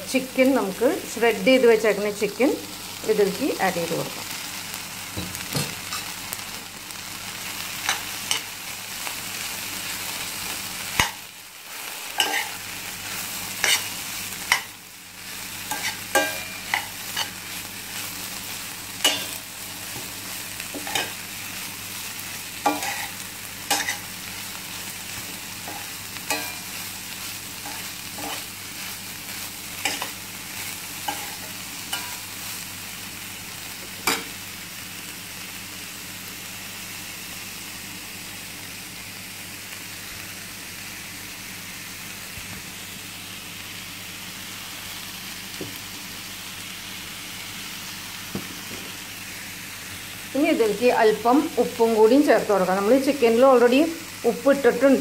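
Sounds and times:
food sizzling in a pan: 0:00.0 - 0:55.0
utensil scraping a pan: 0:12.2 - 0:12.6, 0:13.5 - 0:14.7, 0:15.7 - 0:17.5, 0:19.0 - 0:21.2, 0:22.6 - 0:24.1, 0:27.6 - 0:28.5, 0:31.0 - 0:32.2.

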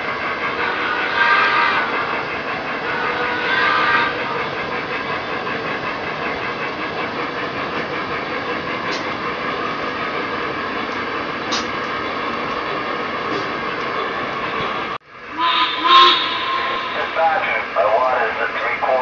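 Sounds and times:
wheels clicking over rail joints: 0:00.0 - 0:15.0
model train cars rumbling: 0:00.0 - 0:19.0.

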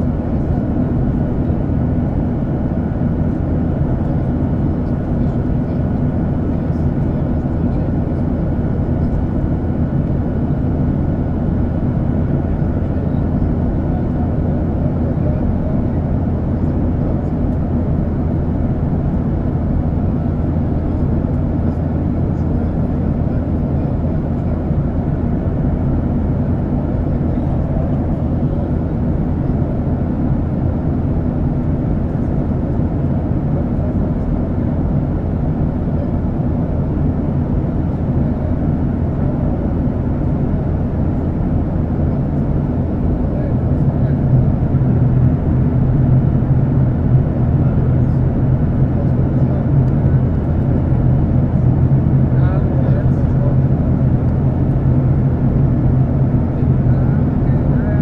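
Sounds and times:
airplane cabin rumble: 0:00.0 - 0:58.0.

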